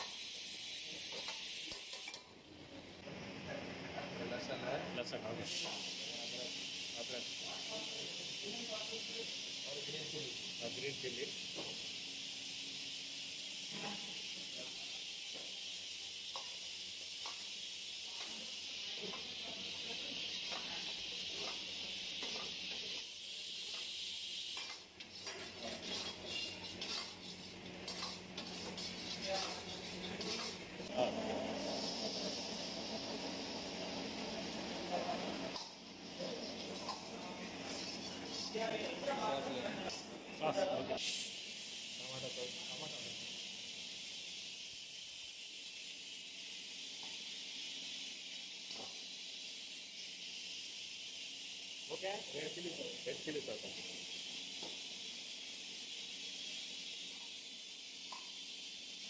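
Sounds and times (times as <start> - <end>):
vegetables sizzling in hot oil: 0.0 - 3.3, 5.4 - 39.4, 41.0 - 59.0
gas stove hissing: 0.0 - 59.0
metal ladle scraping wok: 25.0 - 30.6.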